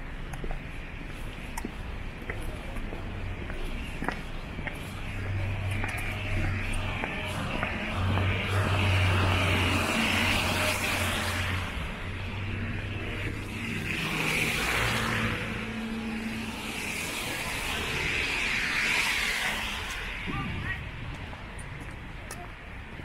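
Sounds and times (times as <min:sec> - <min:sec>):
tyres hissing on wet pavement: 0:13.9 - 0:20.2.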